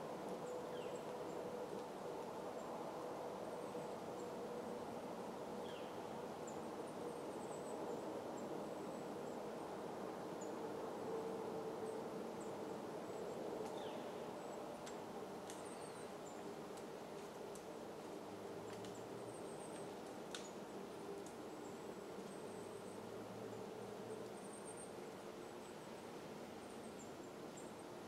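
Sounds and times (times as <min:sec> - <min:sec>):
low hiss with faint hum: 0:00.0 - 0:28.0
faint clicks: 0:14.8 - 0:15.8, 0:18.7 - 0:19.0.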